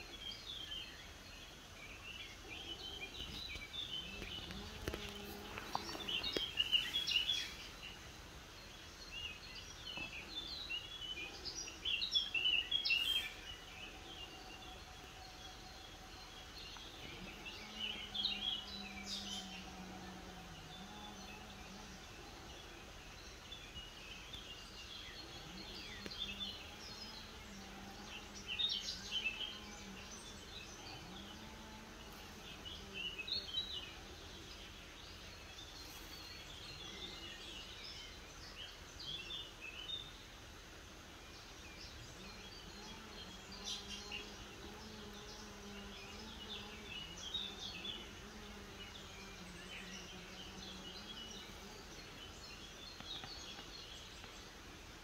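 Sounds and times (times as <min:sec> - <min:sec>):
birds chirping: 0:00.0 - 0:55.0
flying insect buzzing: 0:03.1 - 0:07.7.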